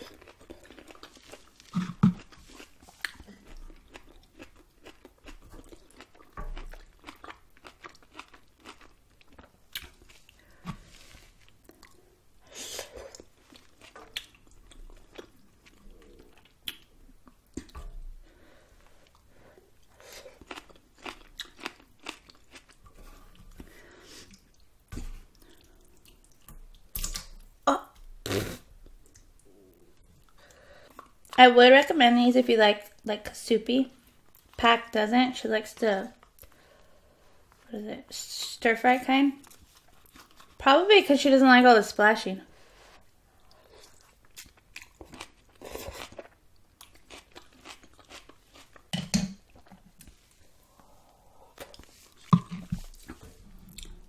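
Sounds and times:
wet chewing with mouth clicks: 0.0s - 12.1s, 12.8s - 17.9s, 18.9s - 27.4s, 43.3s - 54.0s
chewing with wet mouth clicks: 13.1s - 17.8s.

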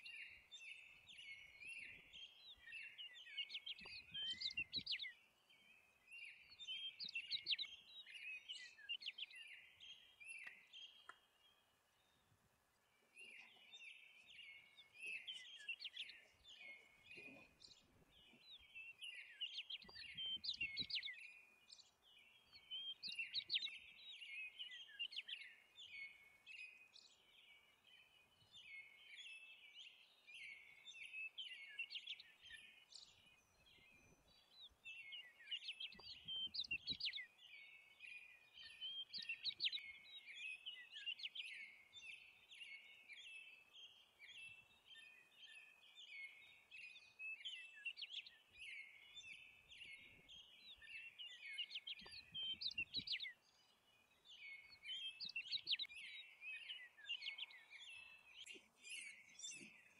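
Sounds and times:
small birds chirping: 0.0s - 59.9s.

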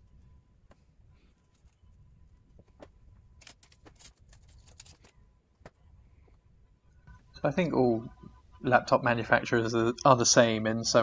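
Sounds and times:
paper sachet crinkling: 3.4s - 5.2s.

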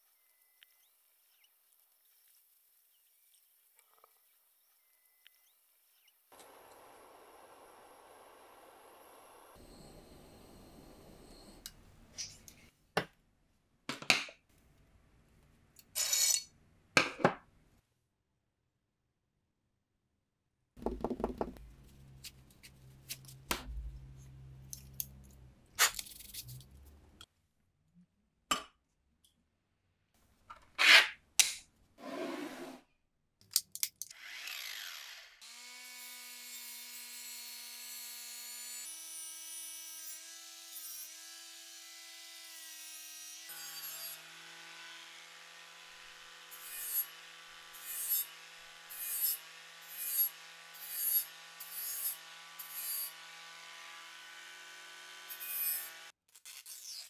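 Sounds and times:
angle grinder whining: 6.4s - 11.8s.

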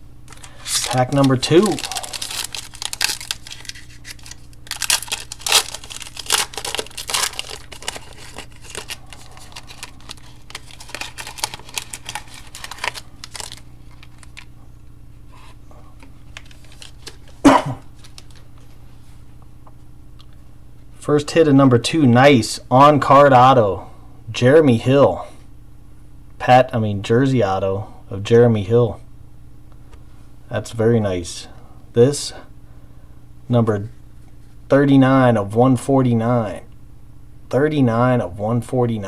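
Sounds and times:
foil wrapper tearing and crinkling: 0.3s - 14.5s, 16.3s - 17.4s, 18.0s - 18.4s.

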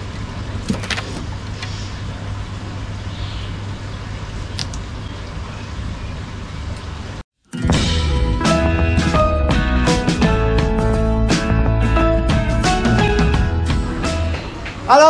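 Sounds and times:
low background hum: 0.0s - 7.2s.

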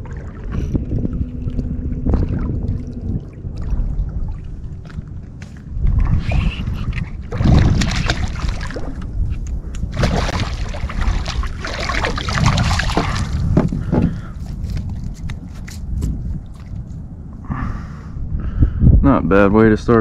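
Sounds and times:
wind rumble on microphone: 0.0s - 20.0s
fish splashing at water surface: 7.3s - 9.0s, 9.8s - 13.5s.

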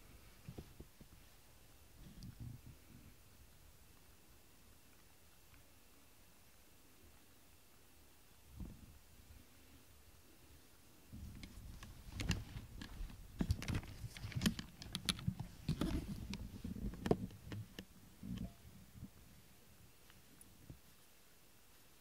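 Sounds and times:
cat rubbing against camera: 11.5s - 17.7s.

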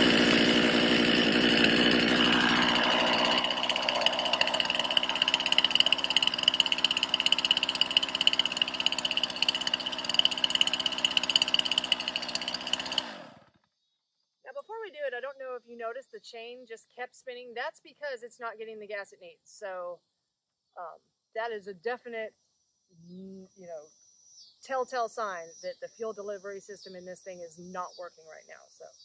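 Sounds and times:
chainsaw idling: 0.0s - 13.6s.

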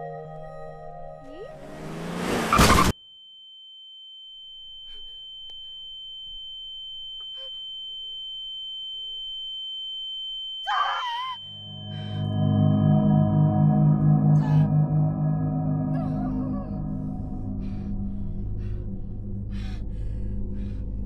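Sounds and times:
high-pitched ringing tone: 3.0s - 19.2s
ambient music with rushing swell: 11.7s - 21.0s.

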